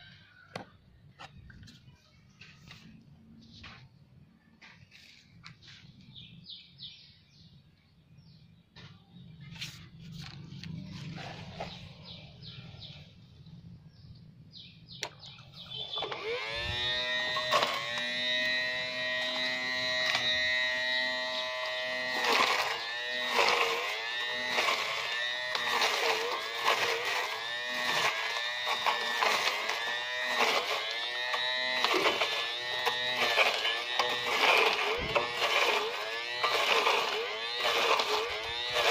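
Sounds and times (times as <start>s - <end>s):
small electric motor whining: 15.0s - 38.9s.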